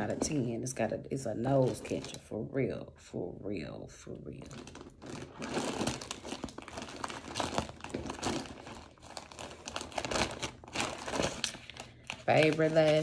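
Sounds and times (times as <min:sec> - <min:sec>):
plastic bag crinkling: 0:01.5 - 0:02.3, 0:04.4 - 0:13.0.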